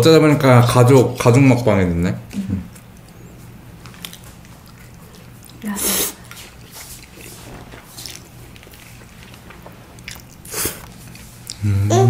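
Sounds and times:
chewing and mouth sounds: 2.2 - 11.7.

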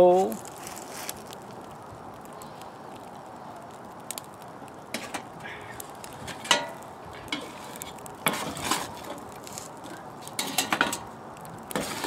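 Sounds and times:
charcoal shifting in metal pan: 4.9 - 12.0
sharp clinks and scrapes: 6.3 - 11.1.

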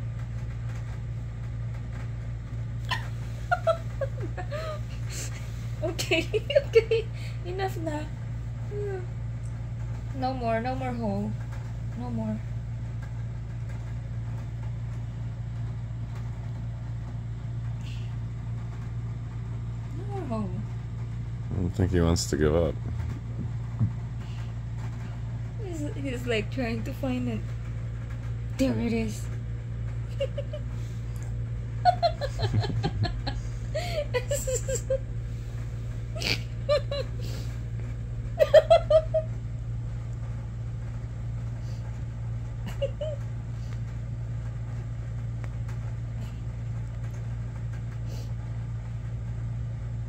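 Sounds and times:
steady low hum: 0.0 - 50.0
person giggling: 2.9 - 4.8, 30.1 - 30.6, 31.8 - 35.0, 36.2 - 37.3, 38.4 - 39.3, 42.6 - 43.2.

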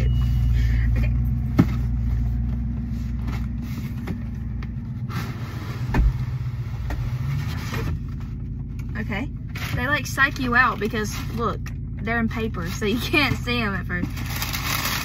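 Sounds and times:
car idling hum: 0.0 - 15.0.

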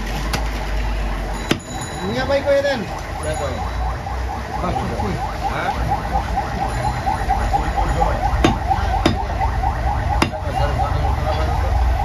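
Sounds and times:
cleaver chopping meat on wooden block: 8.4 - 9.3.

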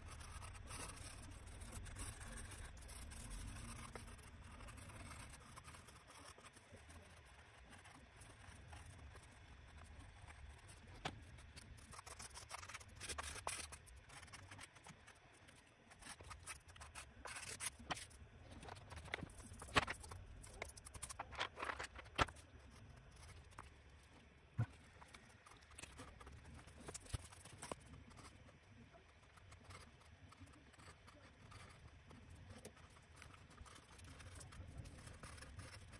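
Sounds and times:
pencil scratching on paper: 0.0 - 35.9
paper rustling: 16.2 - 22.6.

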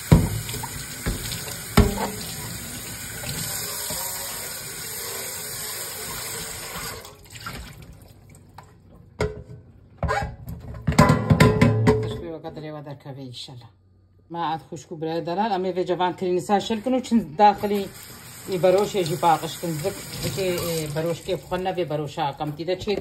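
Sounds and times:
basket knocking in metal sink: 0.0 - 2.4, 10.6 - 12.2
tap water running into sink: 0.0 - 7.9, 17.6 - 21.7.

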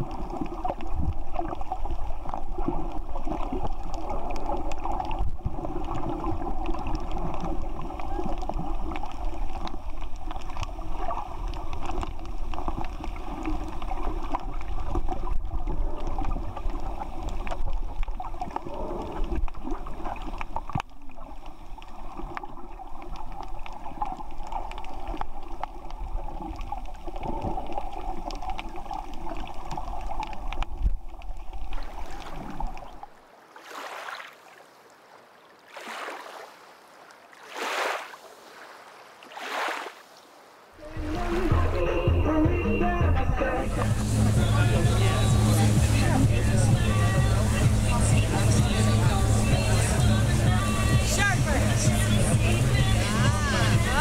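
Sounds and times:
faint underwater clicks: 0.0 - 33.2
muffled underwater water wash: 0.0 - 33.2, 40.8 - 54.0.

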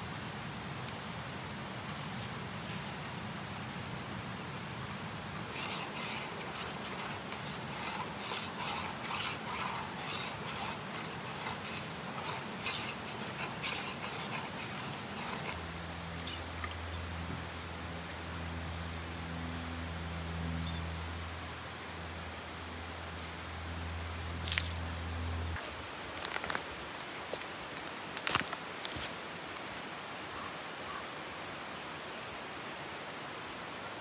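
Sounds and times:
camp stove hiss: 5.0 - 16.8.

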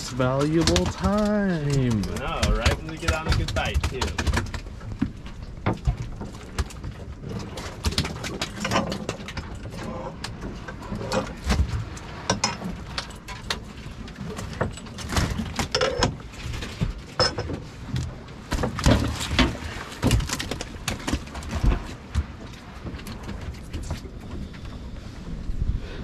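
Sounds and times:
knocks and rattles on metal boat deck: 0.2 - 24.9.

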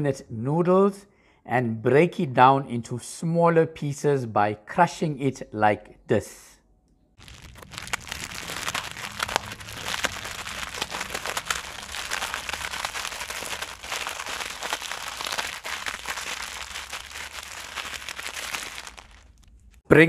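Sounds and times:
dry noodles crackling: 7.2 - 19.8
plastic wrapper crinkling: 7.2 - 19.8.

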